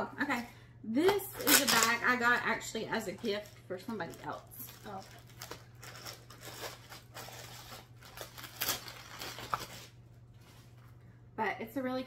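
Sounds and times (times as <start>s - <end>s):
plastic bag crinkling: 1.3s - 10.8s.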